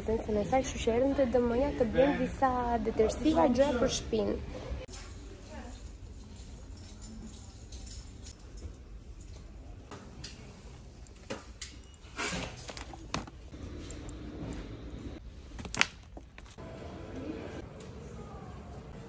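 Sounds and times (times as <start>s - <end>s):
goods picked off shelves: 11.0s - 13.6s, 15.3s - 16.6s.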